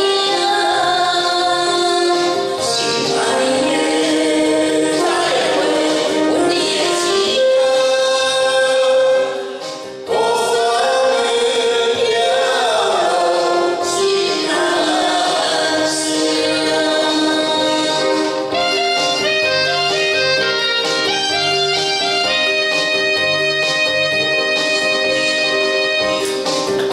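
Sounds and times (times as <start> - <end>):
man and woman singing duet: 0.0 - 18.7
karaoke backing track: 0.0 - 26.9.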